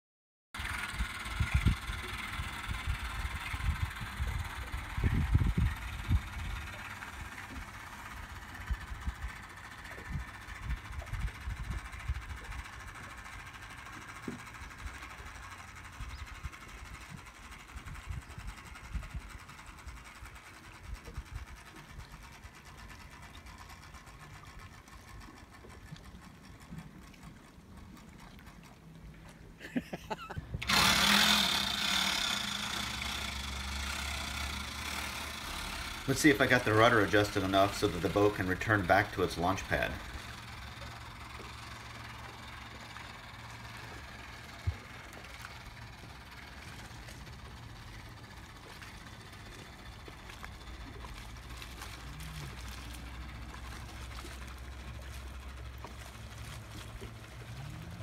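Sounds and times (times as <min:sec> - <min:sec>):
boat engine idling: 0:00.6 - 0:58.0
faint mechanical whir: 0:00.6 - 0:58.0
wind buffeting microphone: 0:00.9 - 0:07.6, 0:08.6 - 0:12.7, 0:16.0 - 0:20.0.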